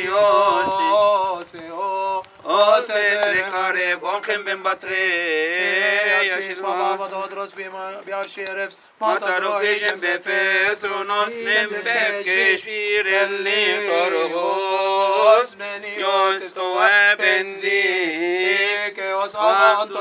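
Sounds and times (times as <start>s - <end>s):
men chanting a hymn: 0.0s - 20.0s.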